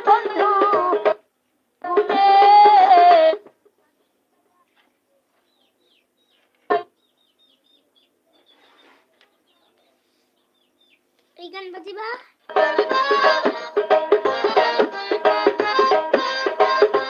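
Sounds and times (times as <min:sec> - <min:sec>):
music with melody: 0:00.0 - 0:01.2, 0:12.5 - 0:17.0
faint bird chirps: 0:05.1 - 0:11.1.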